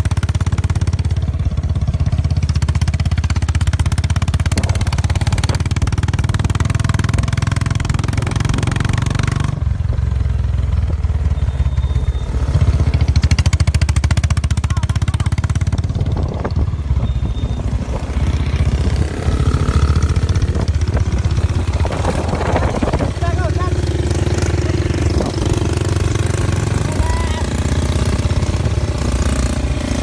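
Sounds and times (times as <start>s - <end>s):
motorcycle engine running: 0.0s - 30.0s.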